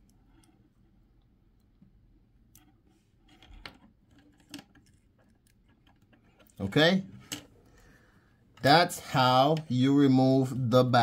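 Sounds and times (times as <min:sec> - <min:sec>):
fingers handling circuit board: 0:00.0 - 0:06.6.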